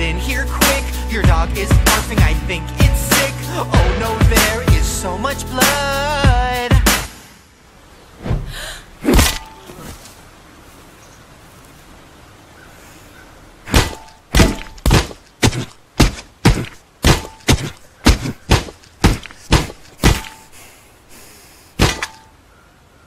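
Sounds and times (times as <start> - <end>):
sharp knocks: 13.7 - 20.5, 21.8 - 22.3.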